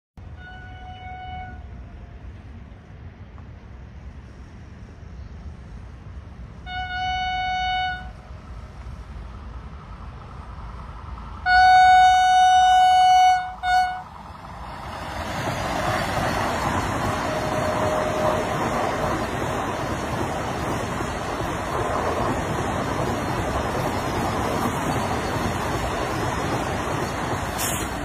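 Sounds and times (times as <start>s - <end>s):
train passing at speed: 0.2s - 28.0s
train horn: 0.3s - 1.8s, 6.6s - 8.2s, 11.4s - 14.1s, 17.3s - 18.8s.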